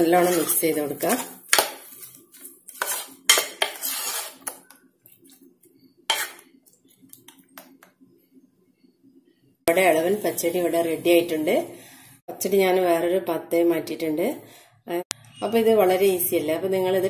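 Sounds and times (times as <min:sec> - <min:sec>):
spoon scraping metal saucepan: 0:00.0 - 0:04.8, 0:06.1 - 0:06.5.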